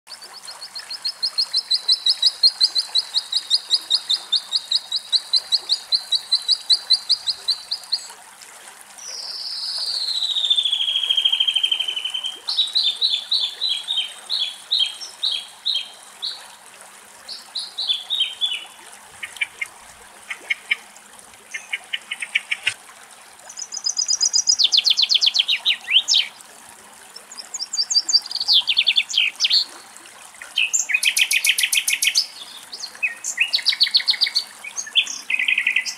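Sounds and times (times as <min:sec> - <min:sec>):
nightingale singing: 0:23.5 - 0:26.3.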